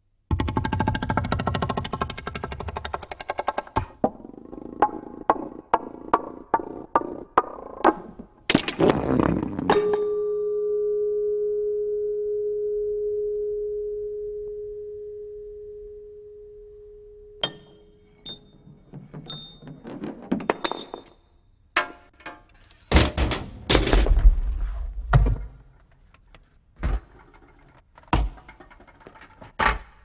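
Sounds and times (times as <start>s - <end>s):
small metallic ticks and pings: 17.3s - 18.6s
struck metal part ringing: 17.4s - 18.6s
metal car parts clattering: 27.0s - 30.0s.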